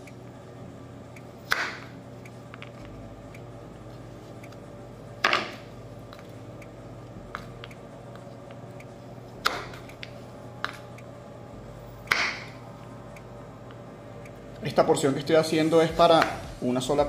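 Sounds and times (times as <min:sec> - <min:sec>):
knife chopping on wooden board: 0:01.5 - 0:01.9, 0:09.4 - 0:09.8, 0:12.1 - 0:12.5.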